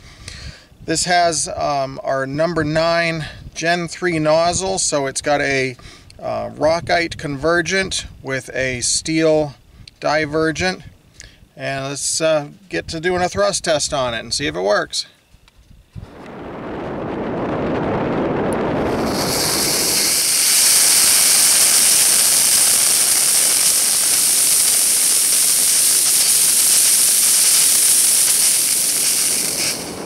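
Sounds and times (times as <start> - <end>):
rocket motor hissing rush: 16.0 - 30.0.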